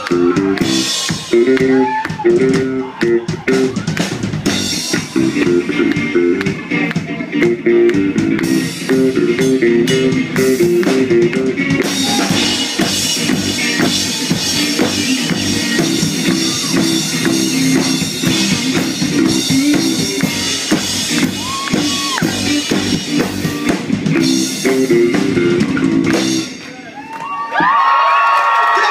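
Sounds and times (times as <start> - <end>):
electric guitar riff: 0.0 - 26.6
drum kit: 0.0 - 27.8
cymbals: 11.9 - 13.8.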